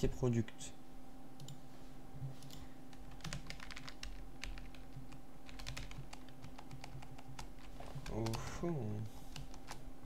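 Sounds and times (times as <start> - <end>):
faint electrical hum: 0.0 - 10.0
keyboard keys clicking: 2.4 - 8.4.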